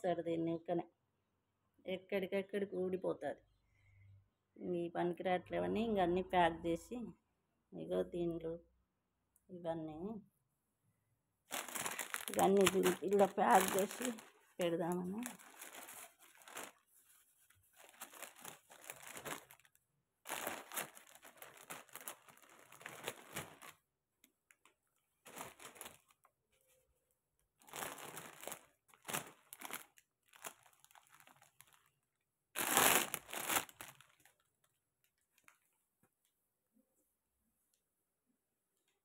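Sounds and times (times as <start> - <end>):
plastic bag crinkling: 11.5 - 23.8, 25.2 - 26.3, 27.6 - 31.9, 32.6 - 34.5.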